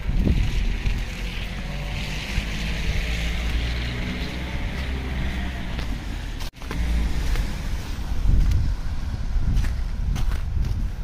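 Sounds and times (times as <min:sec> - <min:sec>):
low traffic rumble: 0:00.0 - 0:11.0.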